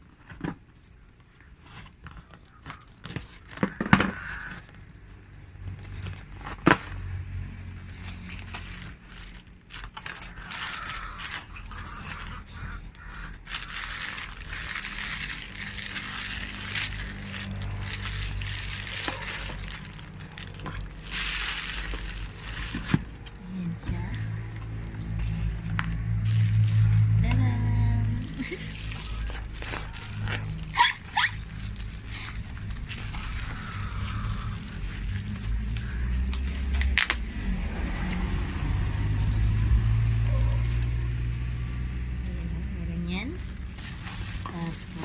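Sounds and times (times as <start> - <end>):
bubble wrap crinkling and rustling: 0.0 - 45.0
scissors cutting packing tape: 34.3 - 37.3.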